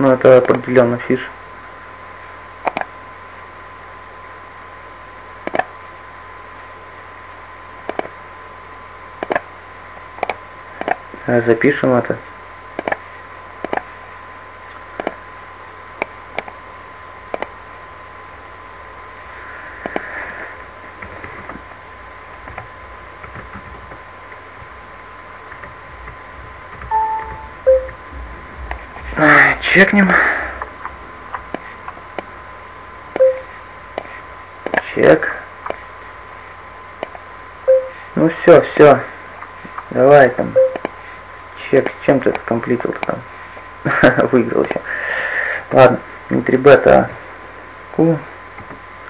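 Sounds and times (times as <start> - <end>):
faint high hum: 0.0 - 49.0
microphone hiss: 0.0 - 49.0
short electronic beeps: 26.9 - 28.0, 33.2 - 33.5, 37.7 - 38.0, 40.6 - 40.8.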